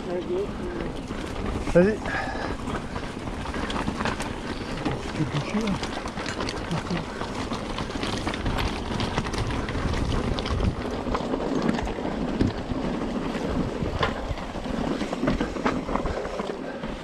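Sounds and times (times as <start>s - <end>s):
bike clicks and rattles: 0.0s - 17.0s
wind rushing over microphone: 7.0s - 17.0s.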